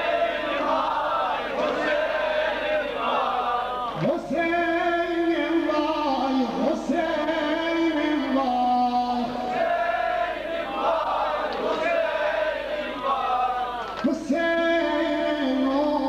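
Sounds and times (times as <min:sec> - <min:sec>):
group chanting: 0:00.0 - 0:04.0, 0:09.1 - 0:14.2
man singing a held chant: 0:04.0 - 0:09.5, 0:14.0 - 0:16.0.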